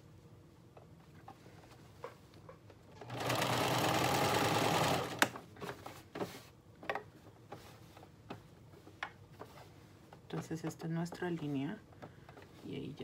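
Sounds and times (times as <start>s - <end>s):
sewing machine stitching: 3.0s - 5.4s.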